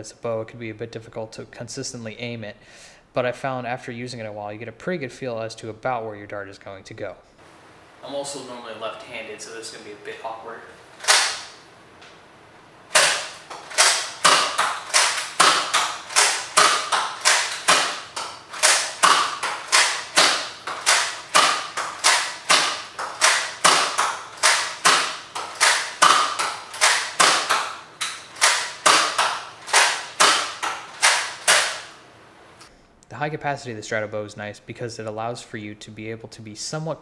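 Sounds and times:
toy bow plastic thwack: 0:11.0 - 0:11.6, 0:12.9 - 0:31.9.

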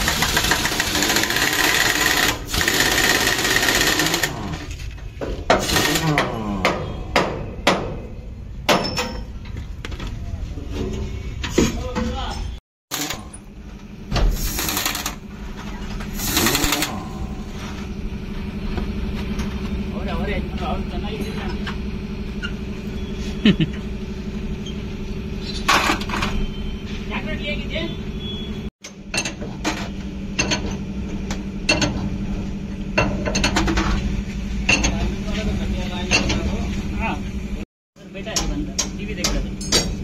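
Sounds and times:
rapid mechanical rattling of tool: 0:00.0 - 0:04.8, 0:05.5 - 0:06.4, 0:12.9 - 0:13.4, 0:14.3 - 0:15.3, 0:16.1 - 0:17.3
low engine-like hum: 0:15.2 - 0:28.7.

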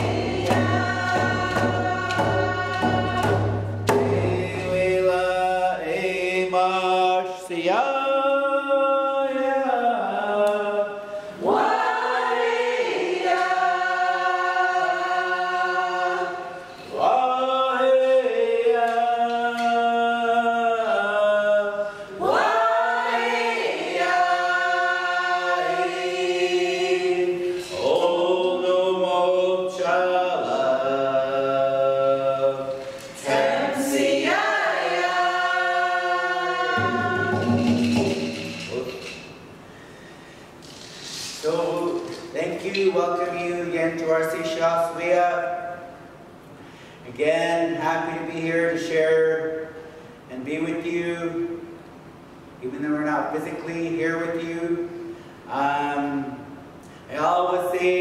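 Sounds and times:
group singing in unison: 0:00.0 - 0:39.3.

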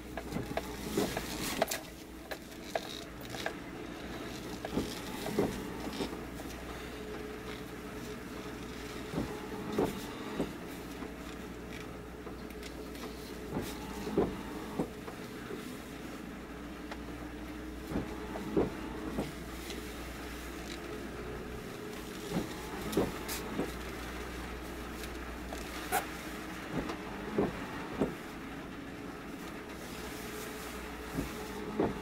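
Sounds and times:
machinery engine hum: 0:00.0 - 0:32.0
short knocks and creaks: 0:00.2 - 0:07.8, 0:08.5 - 0:15.7, 0:17.8 - 0:19.8, 0:21.9 - 0:24.2, 0:31.0 - 0:32.0.

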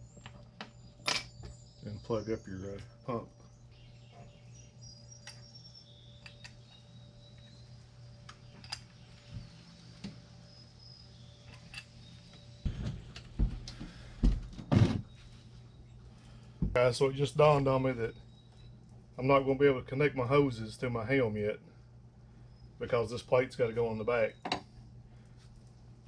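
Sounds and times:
knocks and thumps: 0:12.6 - 0:15.2, 0:16.6 - 0:16.8.

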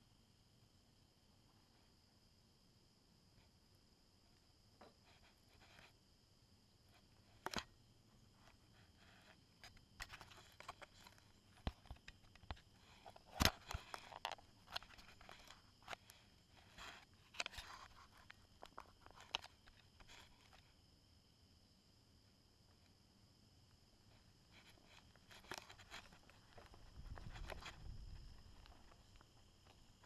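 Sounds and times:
fingers handling a camera: 0:07.3 - 0:07.7, 0:08.4 - 0:20.6, 0:24.5 - 0:30.0.

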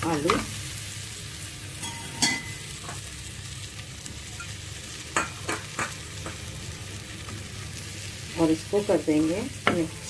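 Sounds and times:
potatoes sizzling in oil: 0:00.0 - 0:10.0.

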